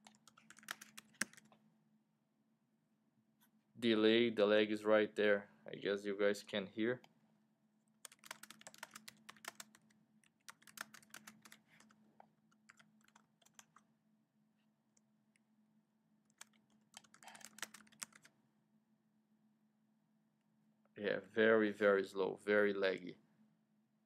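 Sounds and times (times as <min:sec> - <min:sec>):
typing on computer keyboard: 0:00.0 - 0:01.5, 0:08.0 - 0:13.8, 0:16.3 - 0:18.3.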